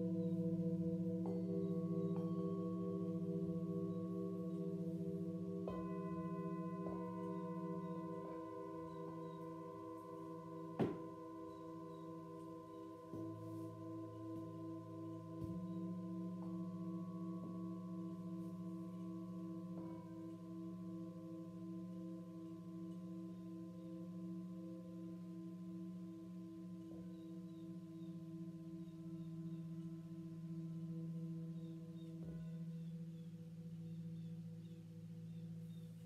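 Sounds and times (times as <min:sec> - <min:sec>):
metal singing bowls ringing: 0:00.0 - 0:36.0.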